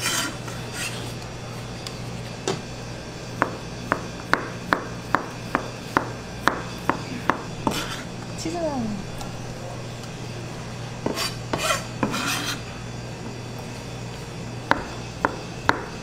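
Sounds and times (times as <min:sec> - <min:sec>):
knife chopping on cutting board: 0:03.4 - 0:08.0, 0:11.0 - 0:12.6, 0:14.7 - 0:16.0.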